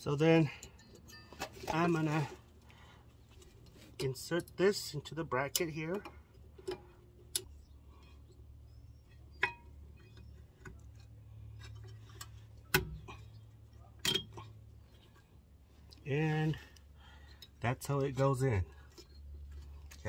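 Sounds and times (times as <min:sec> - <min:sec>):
metallic clicks and taps: 0:05.5 - 0:07.5.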